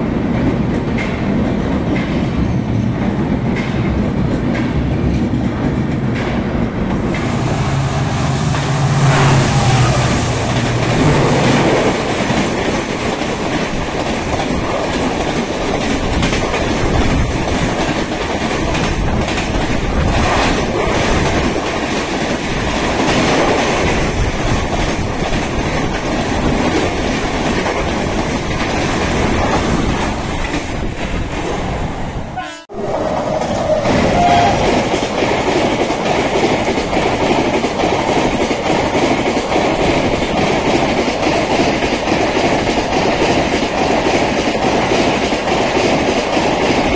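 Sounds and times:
passenger train passing rumble: 0.0s - 46.9s
low hum: 6.9s - 12.4s.

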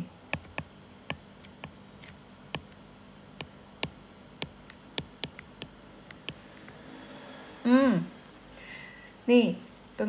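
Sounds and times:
stylus tapping on glass screen: 0.3s - 1.8s, 2.6s - 2.8s, 3.4s - 6.4s.

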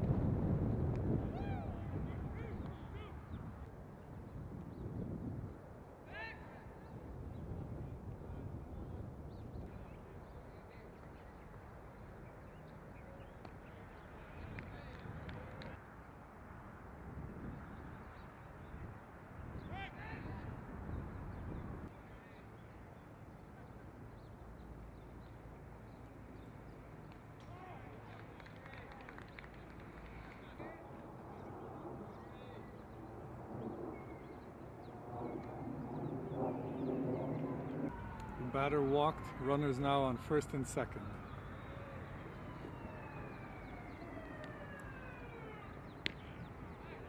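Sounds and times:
open-air hum: 0.0s - 47.0s
wind rumble on microphone: 0.0s - 47.0s
distant siren wailing: 30.6s - 47.0s.

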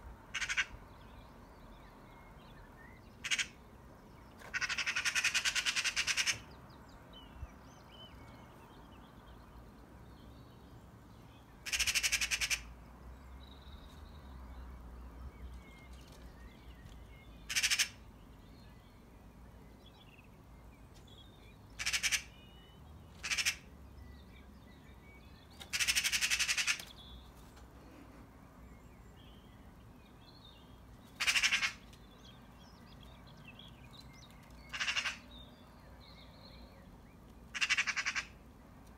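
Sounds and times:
magpie harsh chattering call: 0.4s - 0.8s, 3.2s - 3.6s, 4.5s - 6.5s, 11.6s - 12.7s, 17.5s - 18.0s, 21.8s - 22.4s, 23.2s - 23.7s, 25.7s - 26.9s, 31.2s - 31.8s, 34.7s - 35.2s, 37.5s - 38.4s.

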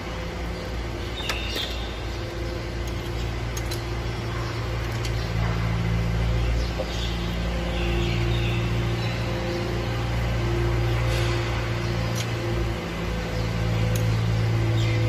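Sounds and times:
engine humming: 0.0s - 15.0s
light metal clicks: 2.8s - 5.8s.

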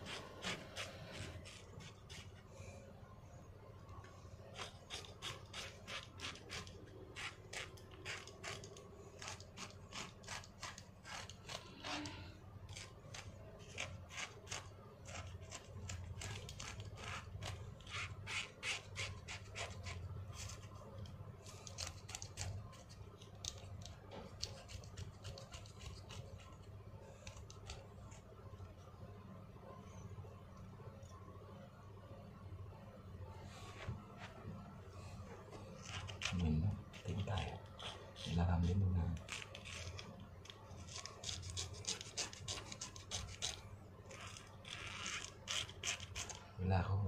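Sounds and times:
blade scraping skin: 0.0s - 2.4s, 4.5s - 20.8s, 21.4s - 28.2s, 35.7s - 46.5s.

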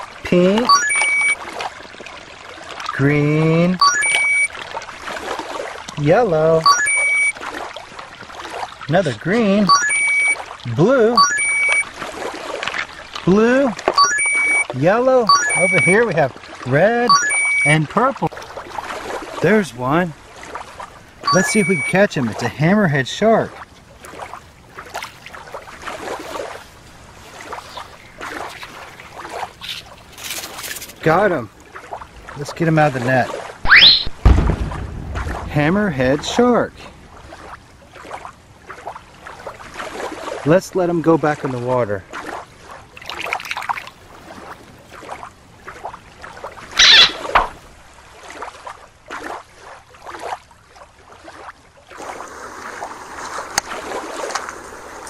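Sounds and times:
net splashing through water: 3.8s - 9.0s, 9.6s - 17.6s, 18.2s - 19.5s, 23.6s - 31.1s, 37.1s - 40.6s, 42.1s - 55.0s.

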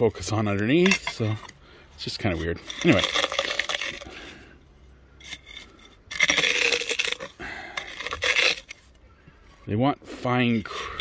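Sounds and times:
tortilla crunching under a mug: 2.6s - 4.5s, 5.2s - 9.0s.

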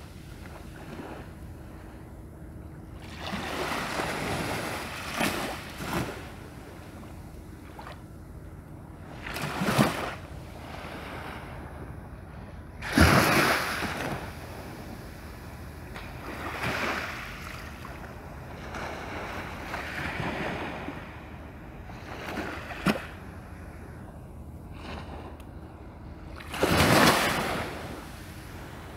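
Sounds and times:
small waves washing on shore: 3.0s - 6.8s, 9.1s - 11.6s, 12.8s - 23.2s, 26.3s - 28.9s.

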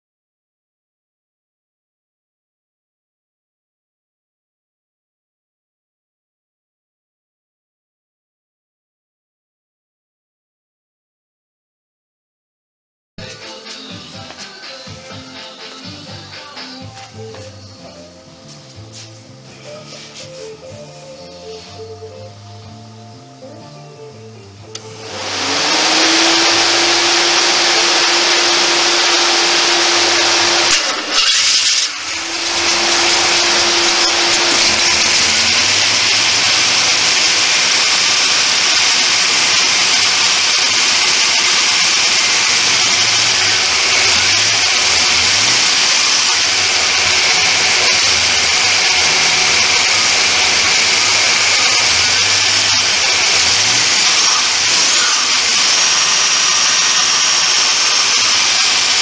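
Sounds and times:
supercharger whine: 24.7s - 59.0s.

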